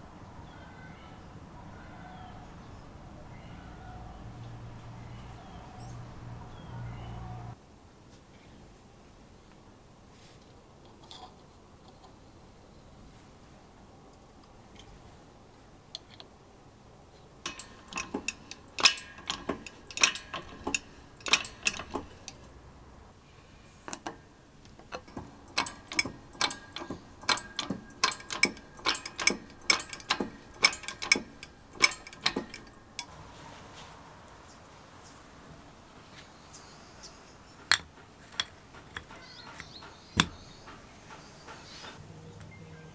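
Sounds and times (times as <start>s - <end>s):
shop press metallic clicks: 17.4s - 22.5s, 23.9s - 33.1s.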